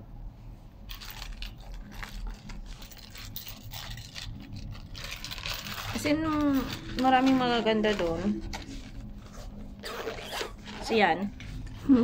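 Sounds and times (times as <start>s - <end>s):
paper cards and packets rustling: 0.9s - 12.0s.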